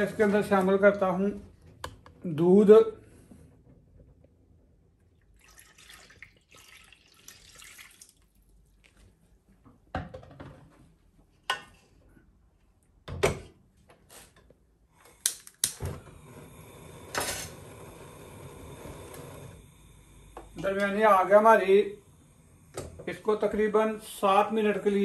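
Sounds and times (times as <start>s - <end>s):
milk pouring into a pot: 5.1s - 9.1s
gas flame hissing: 14.2s - 25.0s
gas lighter clicks: 15.2s - 15.8s.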